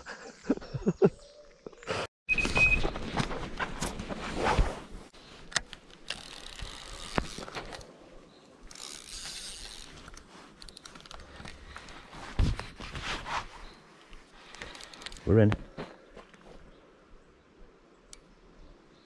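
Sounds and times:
fishing reel ratchet clicking: 6.1 - 7.8, 8.7 - 11.2.

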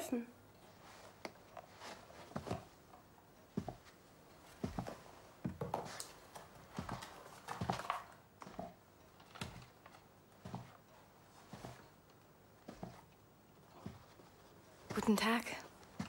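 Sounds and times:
slow footsteps: 0.7 - 8.8, 10.4 - 12.0, 12.6 - 16.0.

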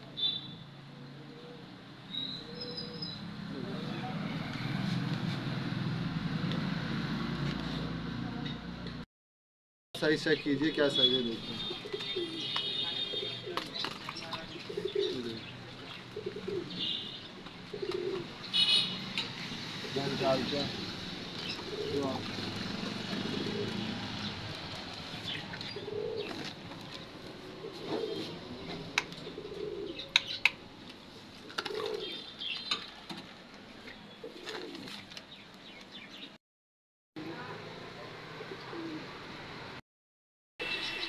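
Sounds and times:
small birds chirping: 10.2 - 18.7
doves cooing: 11.6 - 18.4, 19.8 - 24.3, 25.2 - 30.5, 31.4 - 32.8, 34.2 - 35.2, 38.4 - 39.1.

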